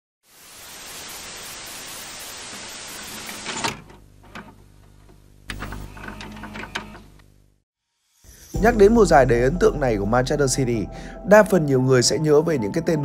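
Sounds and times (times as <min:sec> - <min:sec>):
crackling burst: 0:00.2 - 0:03.6
static hiss: 0:00.2 - 0:07.3
low electrical hum: 0:02.9 - 0:07.6.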